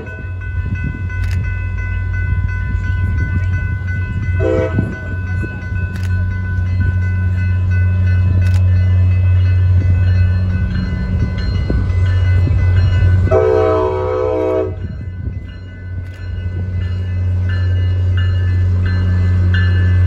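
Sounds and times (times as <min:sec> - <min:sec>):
crossing warning bells ringing: 0:00.0 - 0:20.0
train horn blast: 0:04.4 - 0:05.0, 0:13.2 - 0:14.9.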